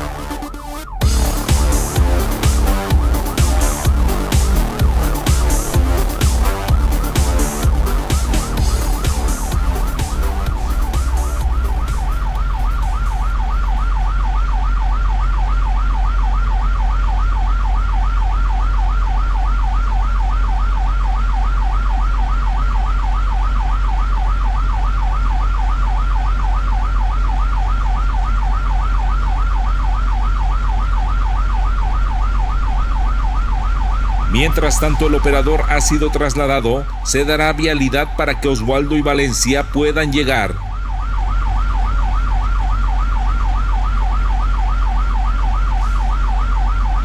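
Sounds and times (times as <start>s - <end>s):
siren yelping: 0.0s - 47.0s
low rumble: 1.0s - 17.2s, 30.6s - 47.0s.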